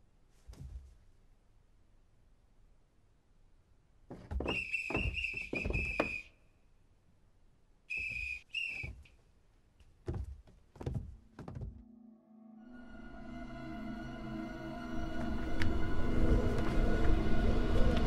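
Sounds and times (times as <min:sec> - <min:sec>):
cartoon whistle tone: 0:07.9 - 0:08.9.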